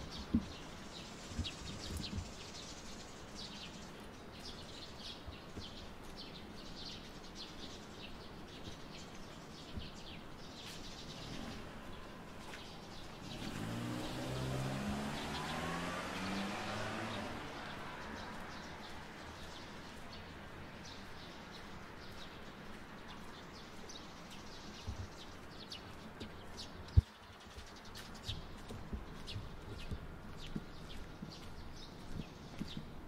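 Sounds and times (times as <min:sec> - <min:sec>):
small birds chirping: 0:00.0 - 0:33.0
vehicle accelerating past: 0:13.2 - 0:19.4.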